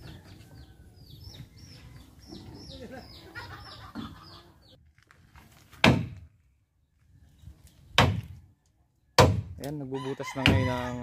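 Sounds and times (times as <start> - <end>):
small birds chirping: 0.0 - 4.8.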